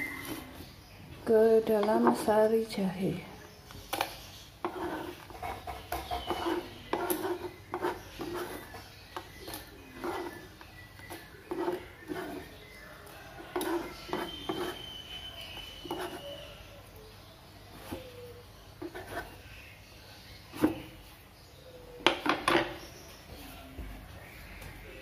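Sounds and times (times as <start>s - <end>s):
knife scraping on cutting board: 4.6s - 12.6s, 13.4s - 16.3s, 18.8s - 19.4s.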